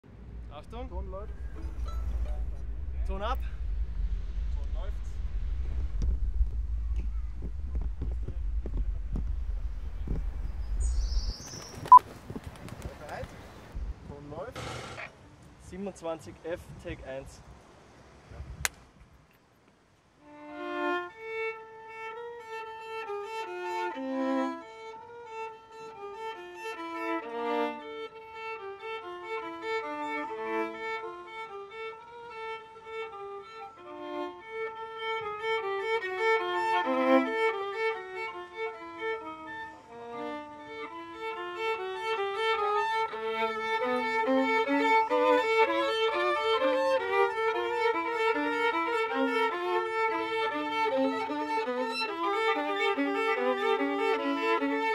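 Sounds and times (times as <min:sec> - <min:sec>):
solo violin melody: 0:20.1 - 0:54.9.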